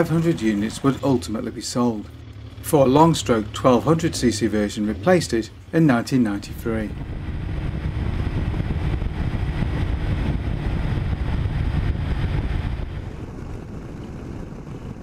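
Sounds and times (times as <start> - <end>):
motorcycle engine running: 0.0 - 5.7, 6.6 - 15.0
wind rushing over microphone: 6.3 - 15.0.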